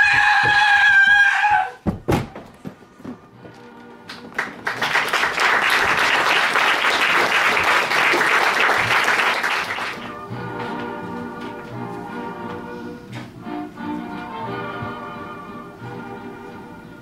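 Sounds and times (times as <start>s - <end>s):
music: 2.6s - 17.0s
audience applauding: 4.1s - 10.2s.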